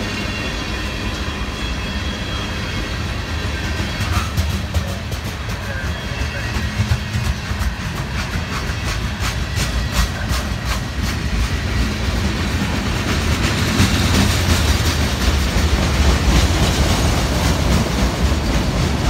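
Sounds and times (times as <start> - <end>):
train wheels rumbling on rail: 0.0 - 19.0
wheel clacks over rail joints: 4.0 - 11.5.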